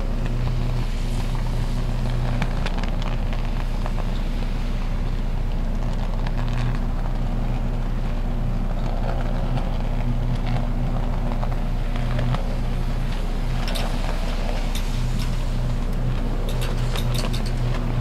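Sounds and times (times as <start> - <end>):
electrical arc crackles: 0.0 - 18.0
electrical arc buzzing: 11.6 - 18.0.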